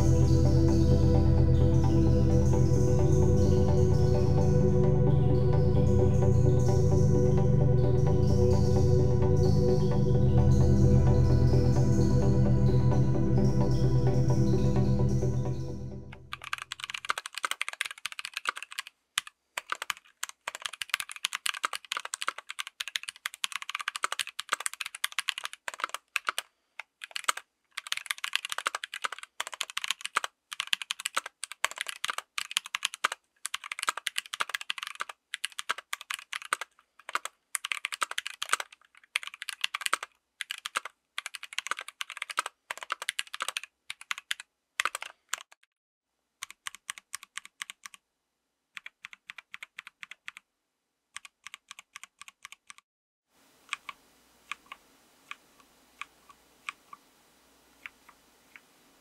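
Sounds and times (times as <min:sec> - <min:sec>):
mechanical keyboard typing: 0:16.3 - 0:45.7, 0:46.4 - 0:48.0, 0:48.8 - 0:50.4, 0:51.2 - 0:52.8, 0:53.7 - 0:55.4
faint hiss: 0:53.3 - 0:59.0.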